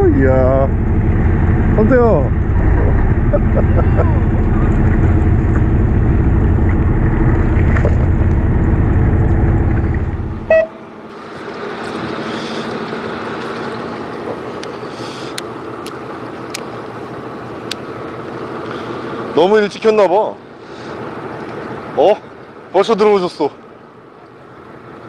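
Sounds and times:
boat engine drone: 0.0s - 25.0s
short beep: 10.5s - 10.8s
wind and water hiss: 10.8s - 25.0s.

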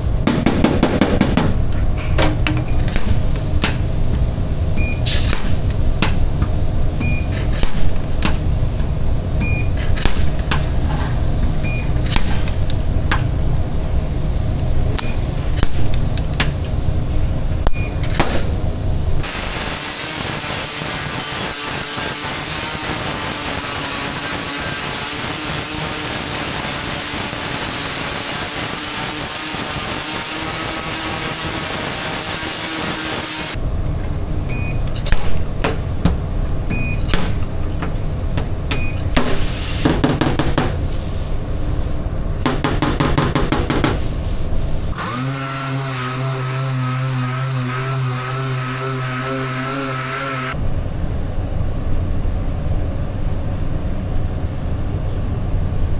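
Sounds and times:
angle grinder grinding metal: 19.2s - 33.6s, 44.9s - 50.6s
sander humming: 19.2s - 33.6s, 44.9s - 50.6s
dent puller clicking and buzzing: 44.9s - 50.6s.

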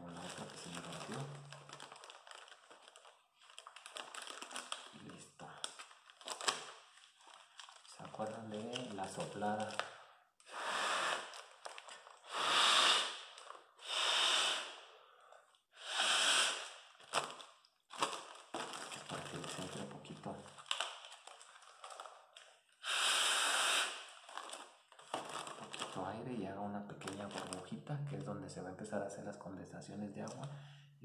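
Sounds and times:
plastic bag crinkling: 0.0s - 10.0s, 11.1s - 12.3s, 13.1s - 13.7s, 16.6s - 22.8s, 23.9s - 26.2s, 26.9s - 28.2s
person blowing into plastic bag: 10.4s - 14.9s, 15.7s - 17.4s, 22.8s - 26.0s.

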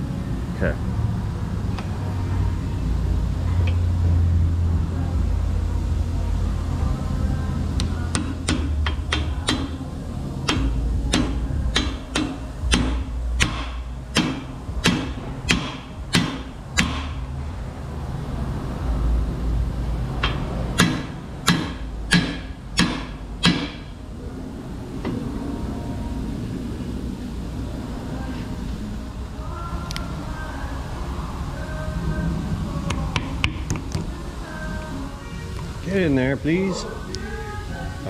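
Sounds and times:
hammer striking metal: 8.1s - 9.8s, 10.4s - 17.2s, 20.2s - 23.9s.

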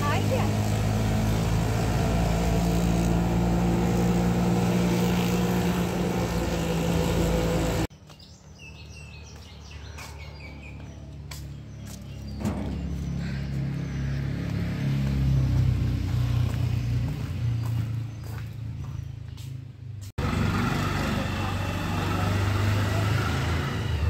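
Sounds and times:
auto-rickshaw engine running: 0.0s - 7.9s, 20.2s - 24.0s
birds chirping: 0.0s - 20.0s
road noise: 0.0s - 24.0s.

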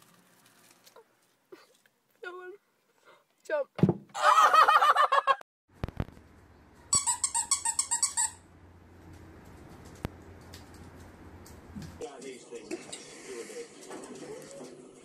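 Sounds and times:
short high squeaks: 6.9s - 8.4s.

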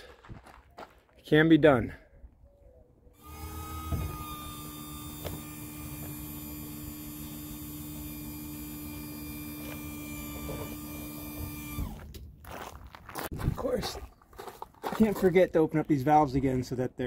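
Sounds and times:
hydraulic pump motor humming: 3.2s - 12.2s.

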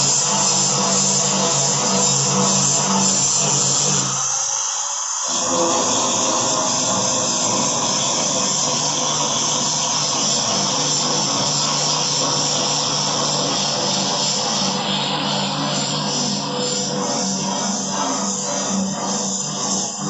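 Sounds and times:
angle grinder grinding glass: 0.0s - 20.0s.

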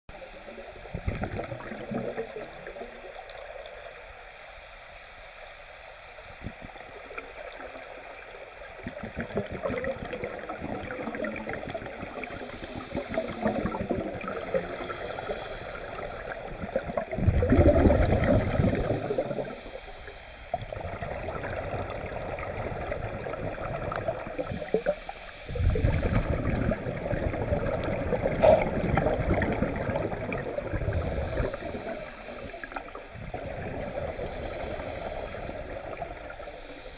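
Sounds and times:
regulator inhale hiss: 0.1s - 1.2s, 4.3s - 7.1s, 12.0s - 16.8s, 18.0s - 21.5s, 24.3s - 26.7s, 30.7s - 36.9s
exhaled bubbles gurgling: 0.5s - 4.0s, 6.4s - 36.9s.

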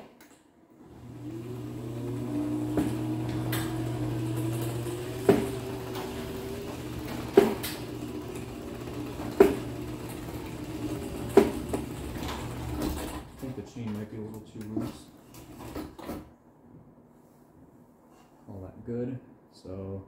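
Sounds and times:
garage door opener motor humming: 0.8s - 13.6s.

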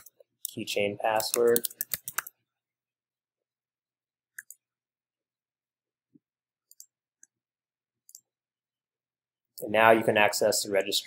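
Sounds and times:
computer mouse clicks: 0.0s - 2.3s, 4.3s - 4.6s, 6.6s - 7.4s.

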